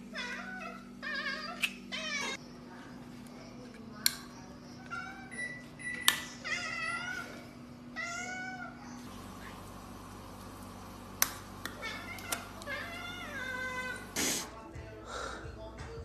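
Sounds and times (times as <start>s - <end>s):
cats meowing: 6.4s - 9.0s, 11.7s - 14.2s.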